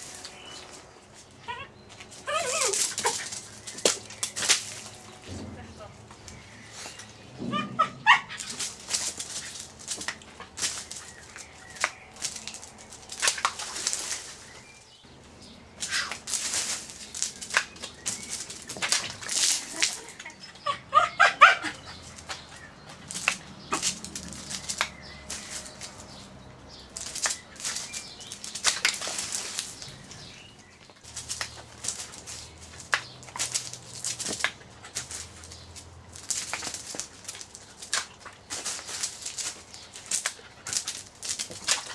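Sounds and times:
rustling and scuffling: 0.0s - 20.6s, 21.7s - 41.9s.

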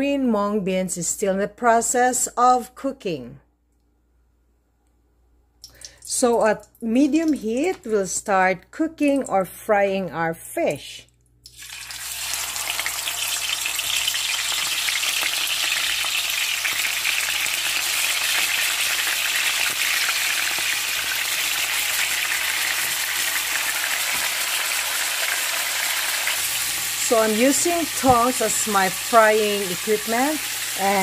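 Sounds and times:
fish sizzling in oil: 11.5s - 31.0s.

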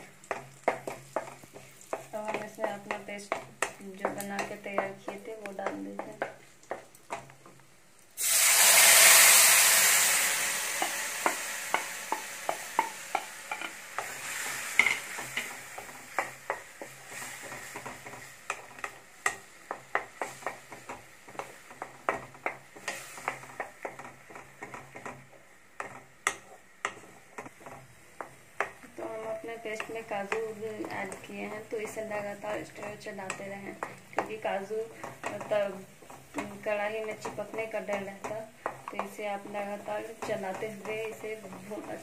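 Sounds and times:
wooden spatula scraping a pan: 0.0s - 7.6s, 9.3s - 42.0s
paste sizzling in hot butter: 0.0s - 42.0s.

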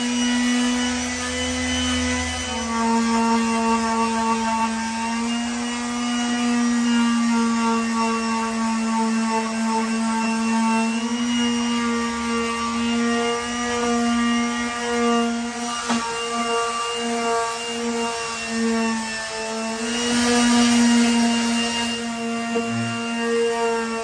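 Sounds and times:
palm sander motor hum: 0.0s - 24.0s
sandpaper scratching wood: 11.6s - 24.0s.

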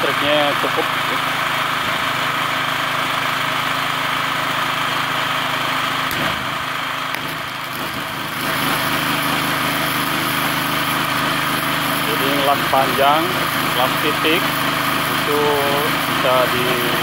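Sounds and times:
generator running: 0.0s - 17.0s
welding arc crackling hiss: 6.0s - 17.0s.

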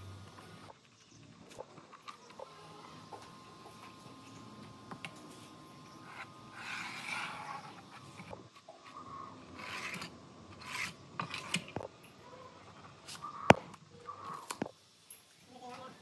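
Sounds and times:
pen scratching along straightedge: 5.9s - 11.9s
straightedge sliding on board: 6.0s - 8.4s, 9.4s - 11.8s.

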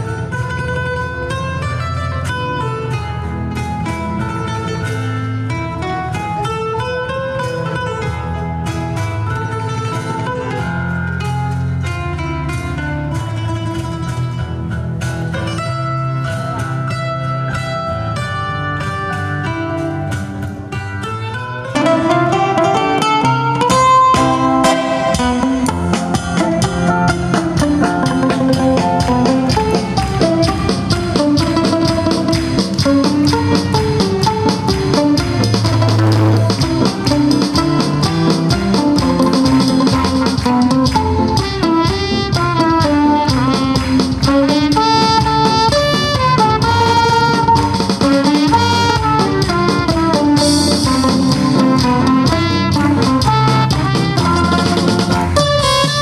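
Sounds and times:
acoustic guitars: 0.0s - 56.0s
percussion: 0.0s - 56.0s
trumpet melody: 26.6s - 56.0s.

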